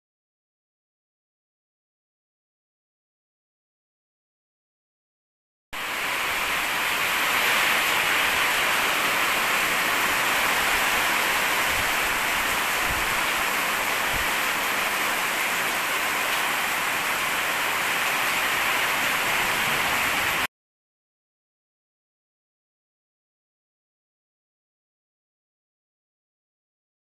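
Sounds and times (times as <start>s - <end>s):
heavy rain on concrete: 5.8s - 20.5s.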